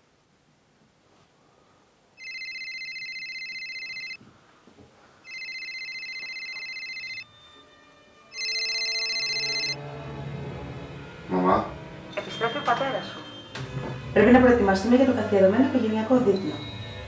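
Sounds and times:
warbling electronic telephone ring: 2.2 - 4.2, 5.3 - 7.3, 8.4 - 9.8.

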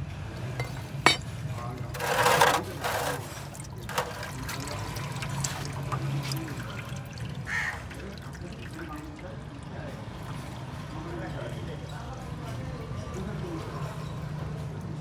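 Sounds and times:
oil trickling into metal tray: 0.6 - 11.5.

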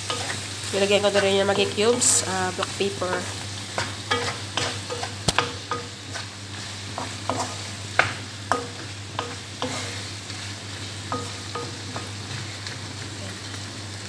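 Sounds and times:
meat sizzling in a wok: 0.0 - 14.0
wooden spatula scraping a pan: 6.0 - 7.7.

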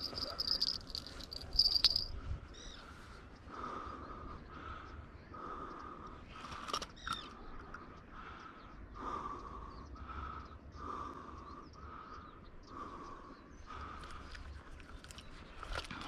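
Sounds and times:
hard breathing with faint whistle: 0.0 - 6.6.

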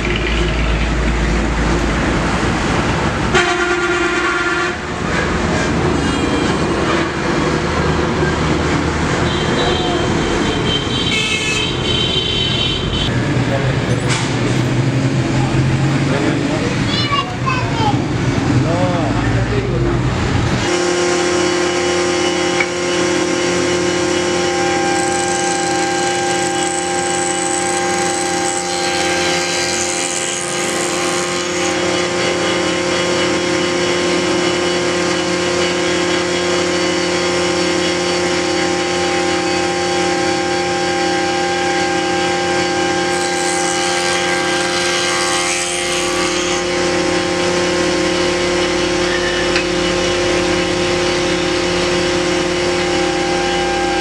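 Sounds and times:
circular saw running: 20.6 - 54.0.

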